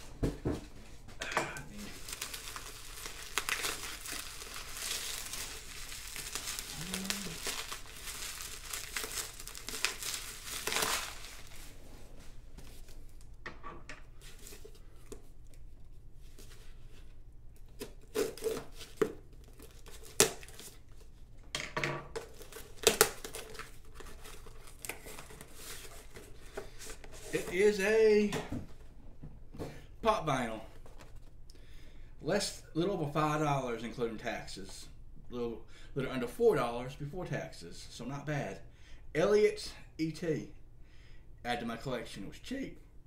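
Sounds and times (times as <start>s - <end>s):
bubble wrap crinkling: 1.8s - 11.8s, 14.2s - 21.1s, 22.2s - 27.8s.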